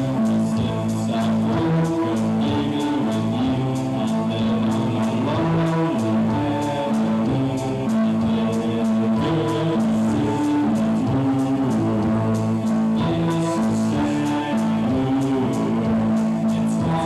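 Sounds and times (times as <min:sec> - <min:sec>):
live band with electric guitar: 0:00.0 - 0:17.0.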